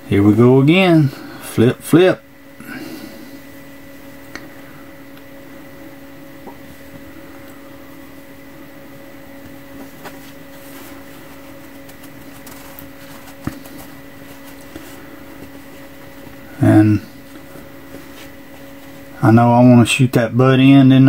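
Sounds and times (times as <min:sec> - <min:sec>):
electrical hum: 0:00.0 - 0:21.0
fabric rustling: 0:09.3 - 0:19.2.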